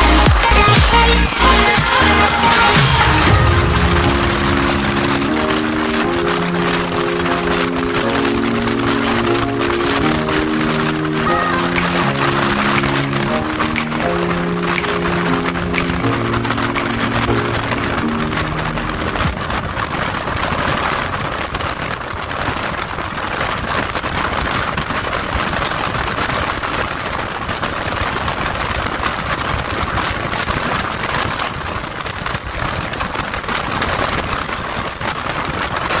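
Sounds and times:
wind and motorcycle road noise: 0:17.2 - 0:36.0.

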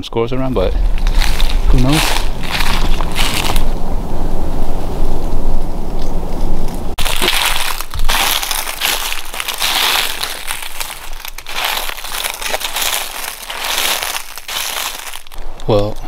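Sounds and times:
low rumble: 0:00.4 - 0:15.7
footsteps crunching dry leaves: 0:00.8 - 0:03.8, 0:07.0 - 0:15.4.

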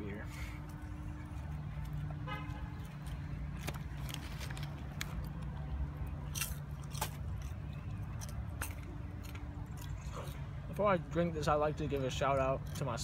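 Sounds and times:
low rumble of street traffic: 0:00.0 - 0:13.0
person chewing popcorn: 0:06.2 - 0:10.5.

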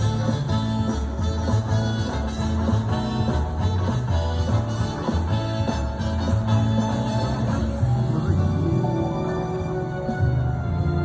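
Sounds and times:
low bass notes: 0:00.0 - 0:11.0
sustained higher tones: 0:06.8 - 0:10.9.

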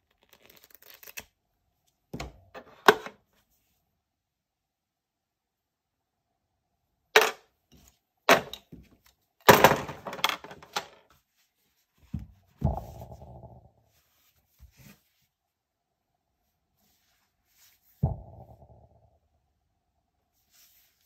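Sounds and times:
dull thud: 0:12.2 - 0:13.6, 0:18.0 - 0:19.0.

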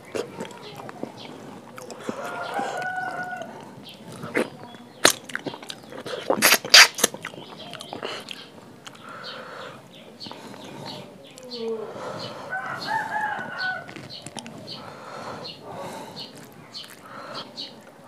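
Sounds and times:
chickens: 0:00.0 - 0:06.3, 0:07.2 - 0:18.0
crunching bites and chewing: 0:00.0 - 0:09.0, 0:12.9 - 0:17.9.

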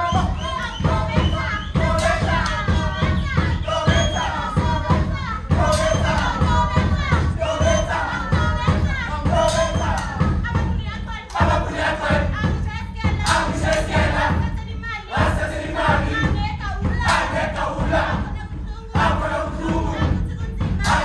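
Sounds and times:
group of voices chanting: 0:00.0 - 0:10.4, 0:11.3 - 0:18.4, 0:19.0 - 0:20.2, 0:20.8 - 0:21.0.

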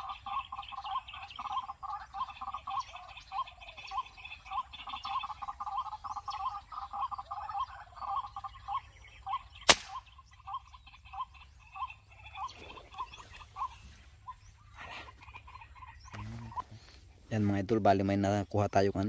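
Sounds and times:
rapid animal calls: 0:00.0 - 0:17.5
air rifle shot: 0:09.6 - 0:10.1.

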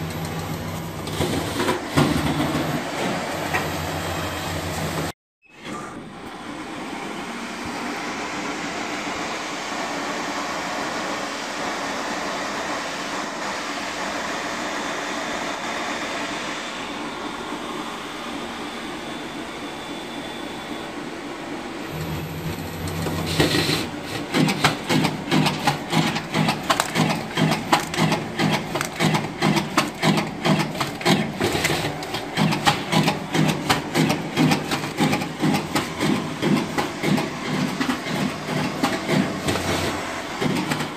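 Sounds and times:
card cutter whirring: 0:21.9 - 0:40.9.

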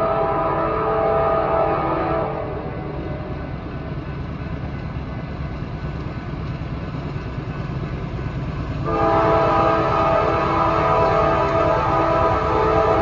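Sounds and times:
locomotive air horn chord: 0:00.0 - 0:03.0, 0:08.8 - 0:13.0
diesel locomotive engine rumble: 0:00.0 - 0:13.0.

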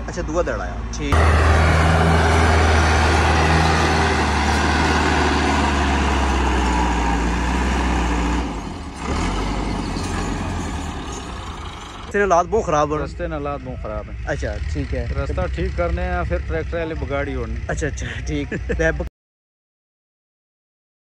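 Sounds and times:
tractor engine running under load: 0:01.2 - 0:12.2.

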